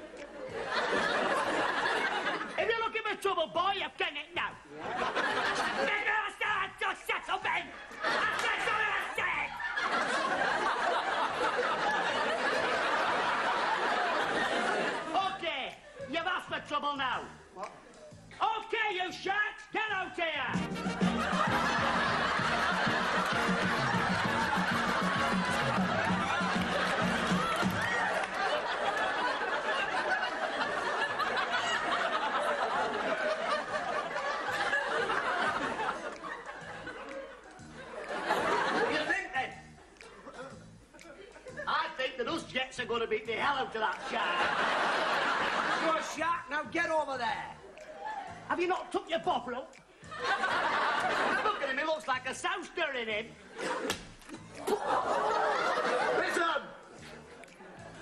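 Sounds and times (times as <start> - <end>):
audience laughing: 0.0 - 2.6, 4.7 - 6.6, 7.3 - 16.1, 20.6 - 41.7, 43.9 - 46.2, 50.1 - 51.8, 53.4 - 58.0.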